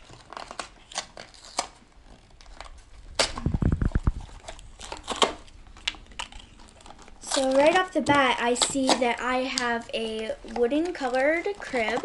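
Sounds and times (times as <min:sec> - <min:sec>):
cardboard boxes tearing: 0:00.0 - 0:09.2
cardboard tabs snapping: 0:00.0 - 0:09.7.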